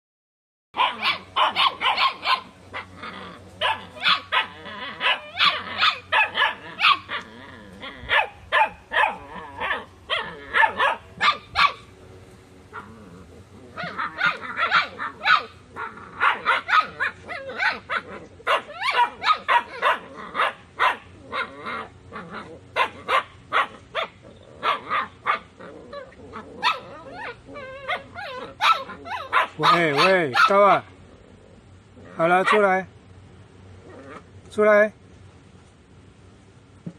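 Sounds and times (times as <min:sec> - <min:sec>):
puppy barking: 0:00.8 - 0:11.9, 0:13.8 - 0:30.8, 0:32.2 - 0:32.8.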